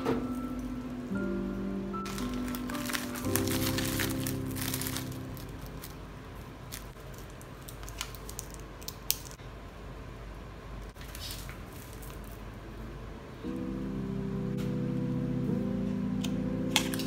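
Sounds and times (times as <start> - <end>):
low steady hum: 0.0 - 17.0
plastic packaging crinkling: 2.0 - 9.4, 11.0 - 12.4.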